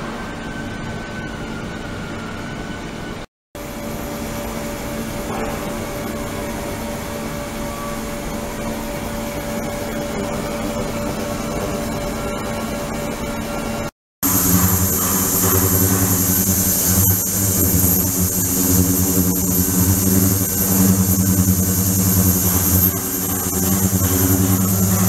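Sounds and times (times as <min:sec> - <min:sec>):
steady hum tone: 0:03.6 - 0:25.0
ultrasonic cleaner hiss and hum: 0:14.2 - 0:25.0.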